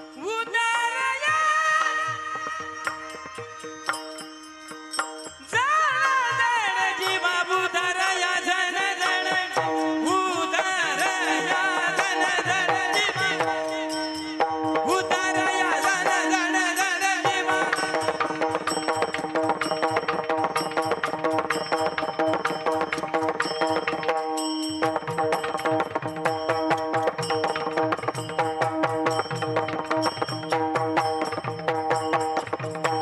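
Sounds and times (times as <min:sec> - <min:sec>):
person singing: 0:00.0 - 0:03.6, 0:05.5 - 0:18.8
hand cymbals clashing: 0:01.2 - 0:33.0
drum strokes: 0:09.5 - 0:33.0.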